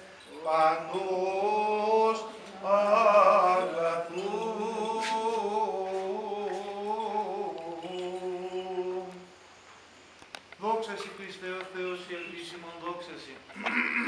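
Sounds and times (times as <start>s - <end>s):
men singing chant: 0.0s - 9.3s.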